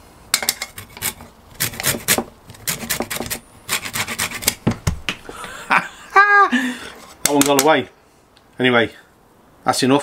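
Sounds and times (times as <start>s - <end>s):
grater scraping lemon: 0.7s - 4.6s.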